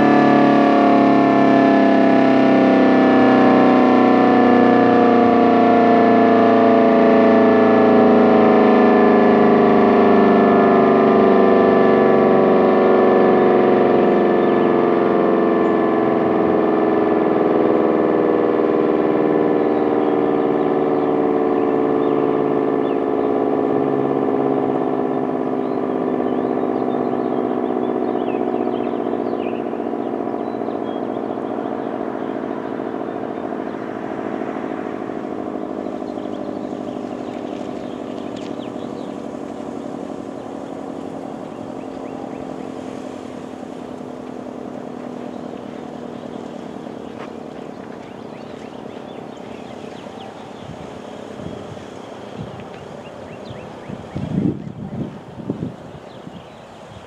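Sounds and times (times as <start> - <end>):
warning siren winding down: 0.0 - 57.0.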